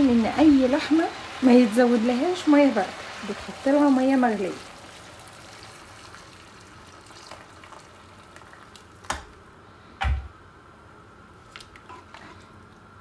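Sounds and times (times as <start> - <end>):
water pouring from kettle: 2.8 - 9.1
kettle set down thump: 10.0 - 10.3.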